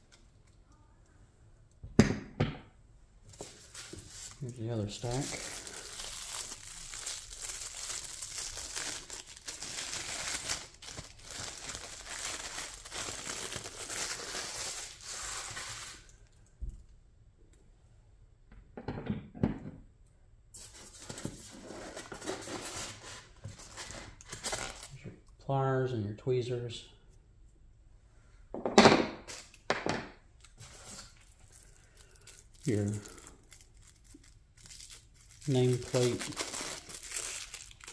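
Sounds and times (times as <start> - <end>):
packaging crinkling and tearing: 3.3 - 16.2, 20.6 - 25.0, 30.4 - 37.9.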